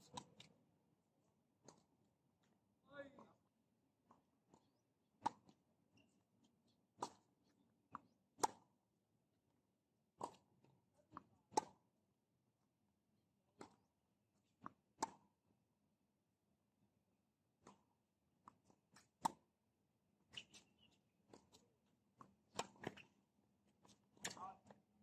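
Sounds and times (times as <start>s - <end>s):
tennis ball bouncing on hard court: 7.0s - 8.7s
tennis ball struck by racket: 8.0s - 8.7s, 11.5s - 11.8s, 22.5s - 23.0s.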